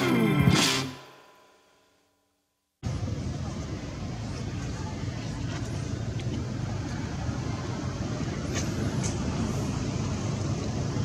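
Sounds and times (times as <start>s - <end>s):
low outdoor rumble: 2.8s - 11.0s.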